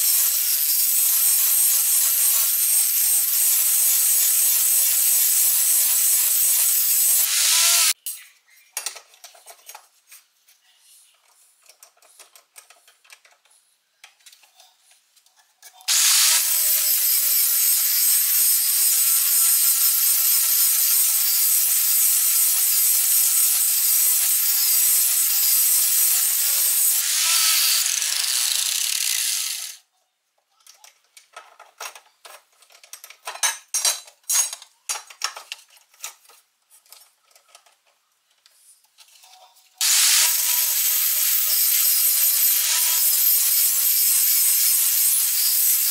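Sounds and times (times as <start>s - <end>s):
angle grinder grinding steel: 0.0s - 8.0s, 15.9s - 29.8s, 39.8s - 45.9s.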